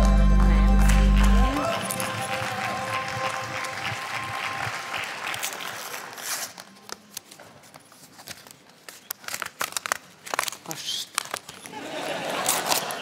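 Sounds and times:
audience applause: 0:00.0 - 0:06.2.

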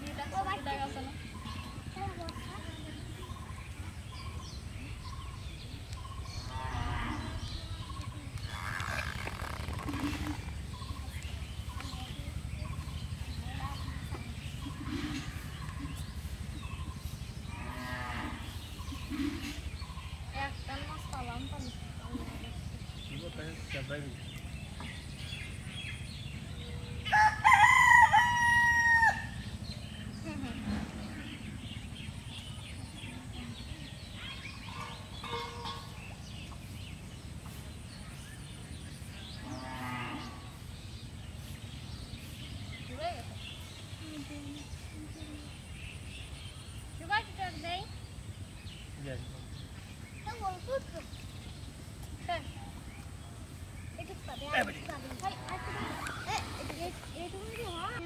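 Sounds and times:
birds chirping: 0:00.0 - 0:58.0
cow mooing: 0:06.4 - 0:07.6, 0:17.5 - 0:19.6, 0:39.4 - 0:40.4.

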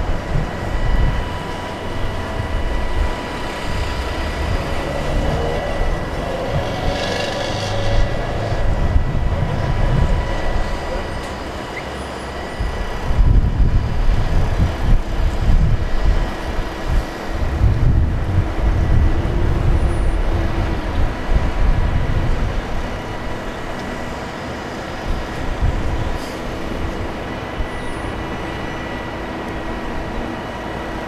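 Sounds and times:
crane diesel engine under load: 0:00.0 - 0:31.0.

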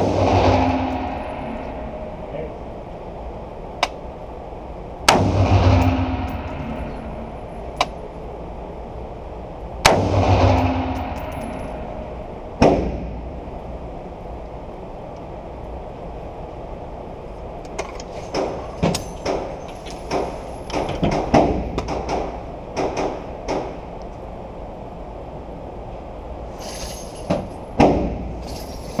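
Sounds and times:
gunshot bang: 0:00.0 - 0:01.9, 0:05.1 - 0:07.4, 0:09.8 - 0:12.0, 0:12.6 - 0:13.2
steady low hum: 0:00.0 - 0:29.0
rifle and gear clattering: 0:17.8 - 0:21.2, 0:28.4 - 0:29.0.

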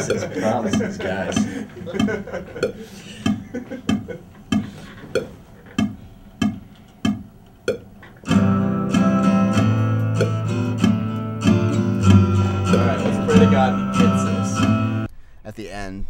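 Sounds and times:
strummed acoustic guitar chords: 0:00.0 - 0:03.4, 0:08.2 - 0:15.1
click track ticking: 0:00.0 - 0:08.2.

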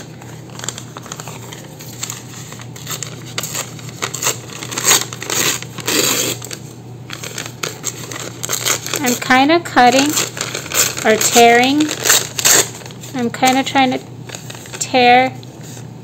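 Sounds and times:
paper bag tearing and crinkling: 0:00.0 - 0:15.8.

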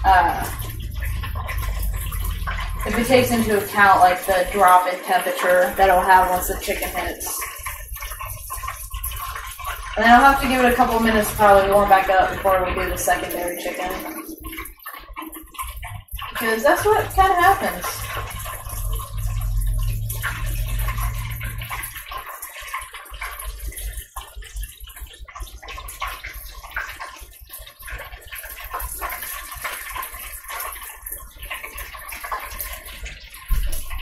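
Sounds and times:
low rumble: 0:00.0 - 0:03.7, 0:17.0 - 0:22.0
chicken sizzling in deep fryer: 0:00.0 - 0:34.0.

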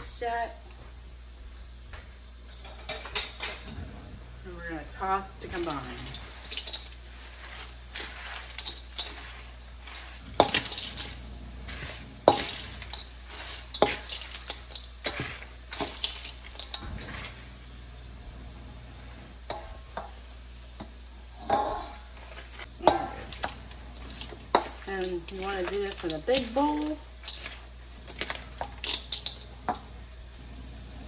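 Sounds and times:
rustle of chips and lettuce: 0:04.5 - 0:19.9, 0:21.7 - 0:31.0
spoon scraping steel bowl: 0:05.4 - 0:17.5, 0:21.5 - 0:29.9.

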